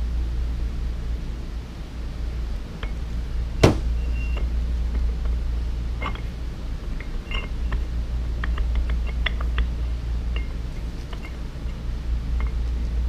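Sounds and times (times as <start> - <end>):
steady low hum: 0.0 - 13.0
metal bolts clicking and clinking: 6.0 - 6.3, 6.9 - 11.8.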